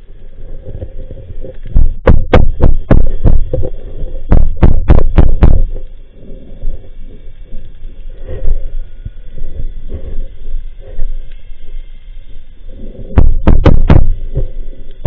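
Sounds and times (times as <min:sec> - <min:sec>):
faint steady hum: 0:00.0 - 0:15.0
sharp underwater knocks: 0:01.7 - 0:03.7, 0:04.3 - 0:05.7, 0:13.2 - 0:14.2.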